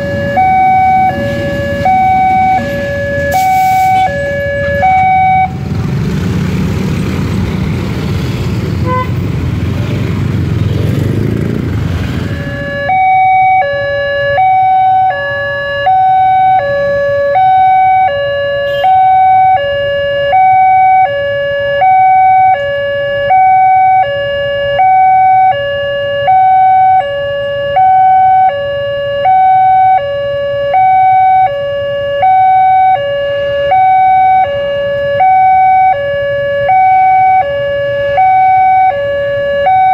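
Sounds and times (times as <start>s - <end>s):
two-tone crossing alarm chime: 0.0s - 5.6s, 12.3s - 21.2s, 21.8s - 36.1s
loud rushing rumble: 0.0s - 12.6s.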